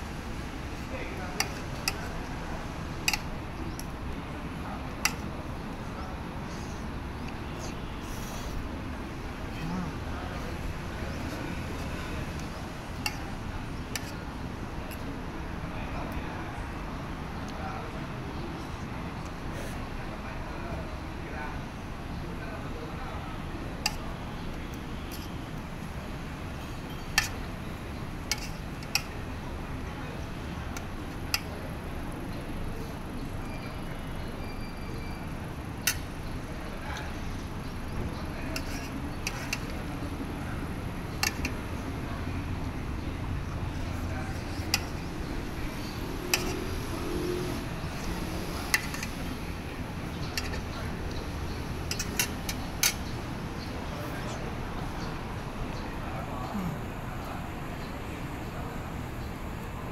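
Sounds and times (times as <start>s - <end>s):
steady background noise: 0.0s - 59.9s
cutlery clinking on metal tray: 48.7s - 49.2s, 51.9s - 53.0s.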